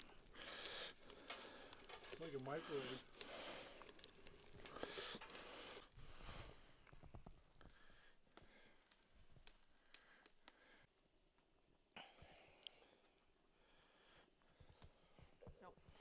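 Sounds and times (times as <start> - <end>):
grilling hiss: 0.0 - 10.8
wood fire crackling: 0.0 - 16.0.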